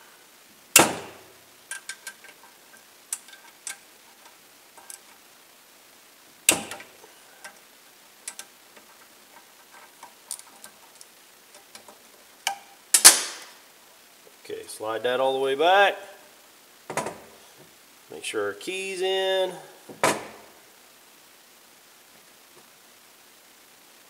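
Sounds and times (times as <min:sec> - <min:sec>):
hand tools clicking on metal: 0:01.7 - 0:02.5, 0:03.1 - 0:05.1, 0:08.3 - 0:13.1.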